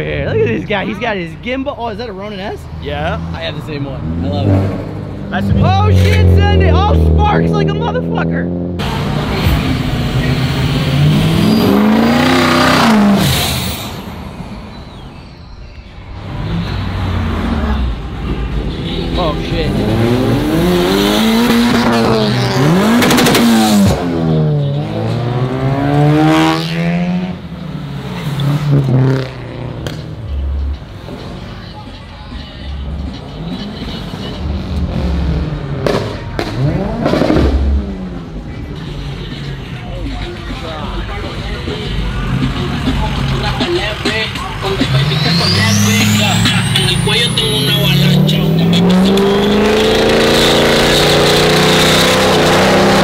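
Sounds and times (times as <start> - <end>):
cars driving past: 0.0 - 53.0
car engine revving: 1.6 - 15.4, 16.0 - 31.7, 32.3 - 53.0
vehicle accelerating past: 16.2 - 30.1
sharp exhaust bangs: 34.4 - 38.3.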